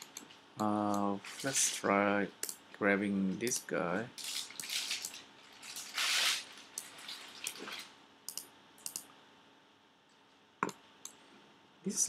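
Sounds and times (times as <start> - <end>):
mouse and keyboard clicks: 8.3 - 9.1.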